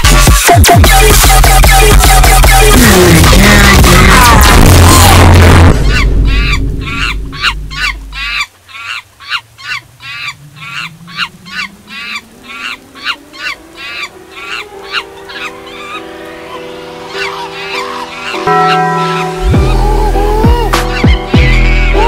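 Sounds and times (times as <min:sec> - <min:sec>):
loud electronic music: 0:00.0 - 0:07.2, 0:18.3 - 0:22.0.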